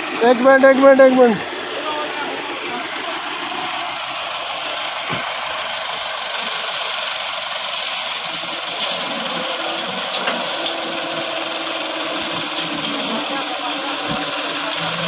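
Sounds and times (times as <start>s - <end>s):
tractor diesel engine idling: 0.0s - 15.0s.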